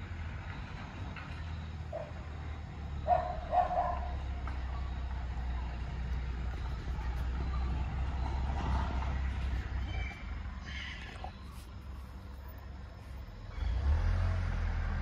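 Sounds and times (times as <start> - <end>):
truck engine rumbling: 0.0 - 15.0
small dog barking: 3.0 - 4.2.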